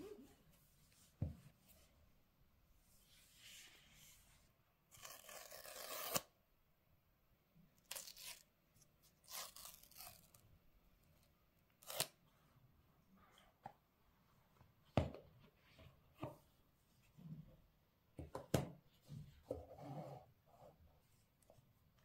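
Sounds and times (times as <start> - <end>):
paper strip tearing: 4.9 - 6.3, 7.9 - 8.5, 9.2 - 10.4.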